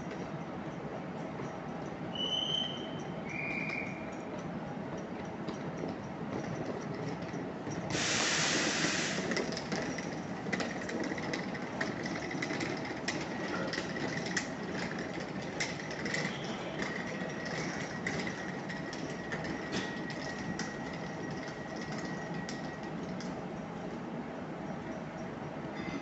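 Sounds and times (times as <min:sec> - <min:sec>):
compressed air hiss: 0:07.9 - 0:09.3
train humming: 0:07.9 - 0:25.8.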